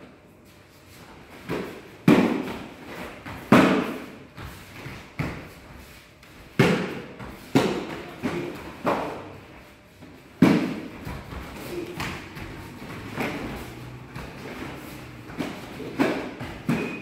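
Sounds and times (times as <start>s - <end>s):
kicks thumping on padding: 10.4s - 17.0s.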